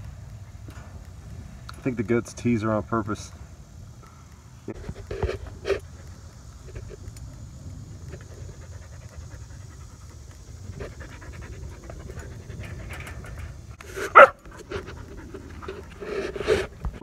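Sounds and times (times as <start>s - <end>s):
dog panting: 8.2s - 13.2s, 14.2s - 16.6s.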